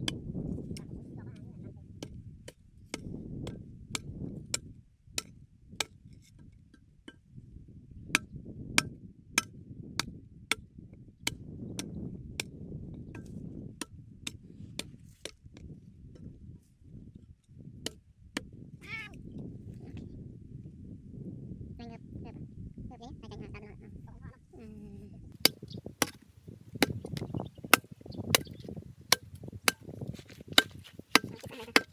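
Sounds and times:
blade chopping: 25.4s - 26.2s, 26.8s - 31.9s.

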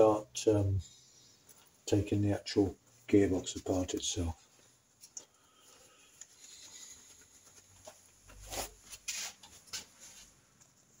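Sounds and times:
leather gloves rustling: 4.4s - 11.0s.

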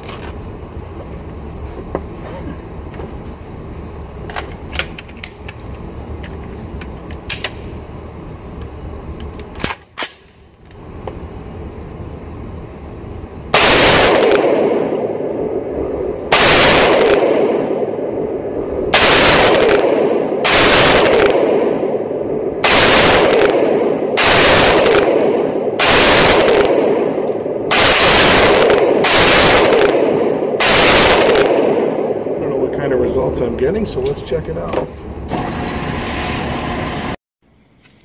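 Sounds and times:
background noise: 0.0s - 35.4s
rifle shots: 13.5s - 18.3s, 18.9s - 32.4s.

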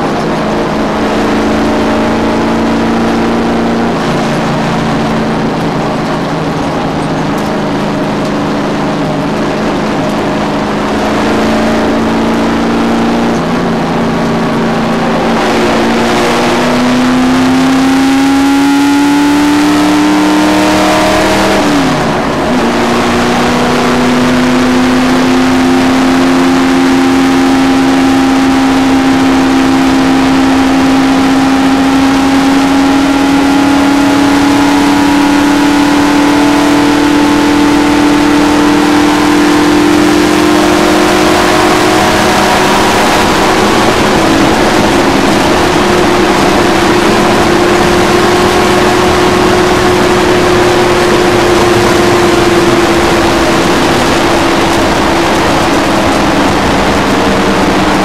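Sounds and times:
race car engine at speed: 0.0s - 58.0s.

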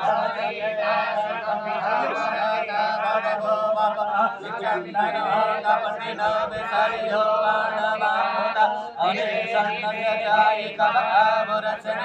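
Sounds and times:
mantras chanted: 0.0s - 12.0s.

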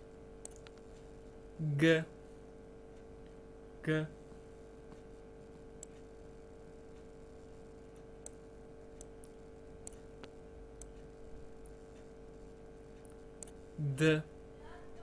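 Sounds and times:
steady faint hum: 0.0s - 15.0s
computer mouse clicks: 0.4s - 0.9s, 5.8s - 6.1s, 7.9s - 11.1s, 11.9s - 13.6s.

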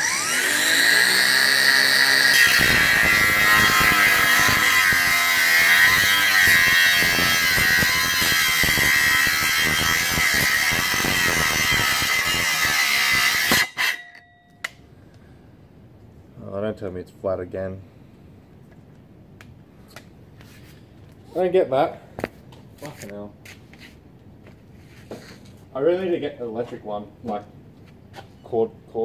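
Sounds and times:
angle grinder cutting metal: 0.0s - 14.2s.

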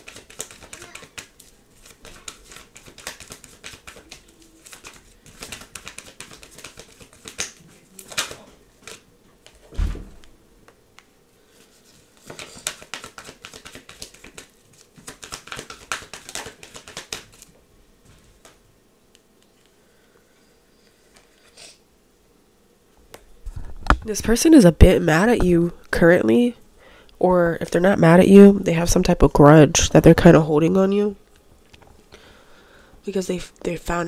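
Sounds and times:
cards being shuffled: 0.0s - 9.6s, 11.0s - 18.6s
low thump: 9.8s - 10.2s.

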